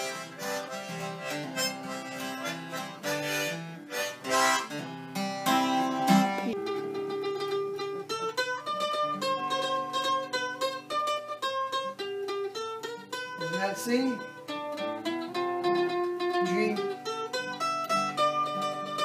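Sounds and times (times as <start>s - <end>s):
harmonica playing held notes: 0.0s - 7.6s
acoustic guitar: 0.0s - 19.0s
mandolin picking a tune: 0.0s - 19.0s.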